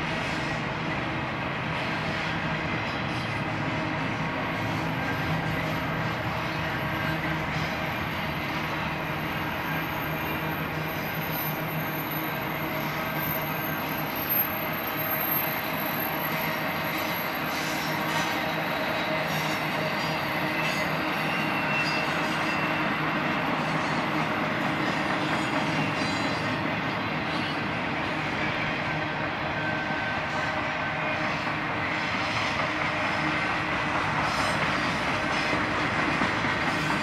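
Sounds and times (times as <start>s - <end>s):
freight train rolling past: 0.0s - 37.0s
high-pitched wheel squeal: 9.2s - 23.2s.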